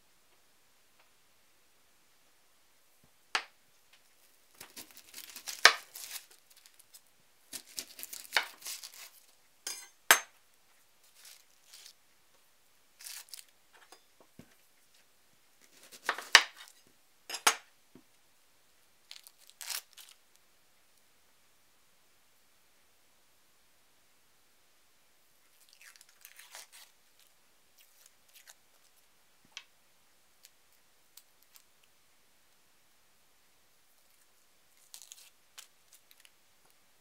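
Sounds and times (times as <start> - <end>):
onion skin crackling and tearing: 4.6 - 9.4, 11.0 - 12.0, 13.0 - 13.5, 19.1 - 20.2, 25.6 - 28.9, 34.8 - 36.3.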